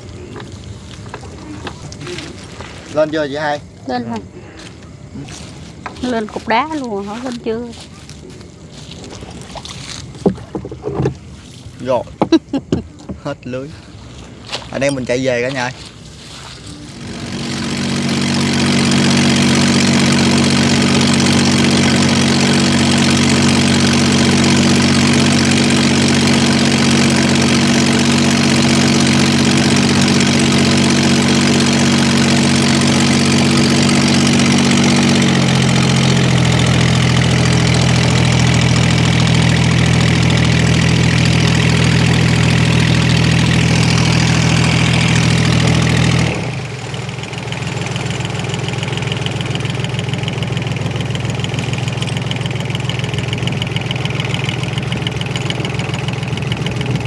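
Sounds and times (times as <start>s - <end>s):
boat engine running: 0.0s - 57.0s.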